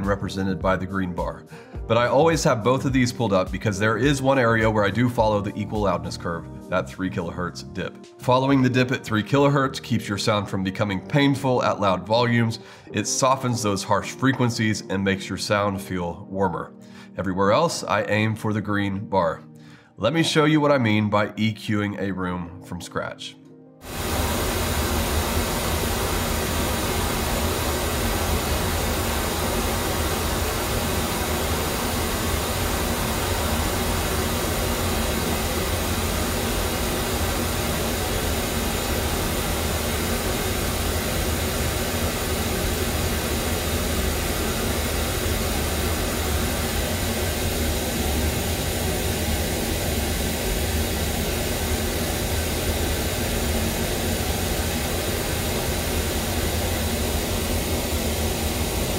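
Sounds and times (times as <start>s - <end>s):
pink noise test signal: 23.8s - 58.9s.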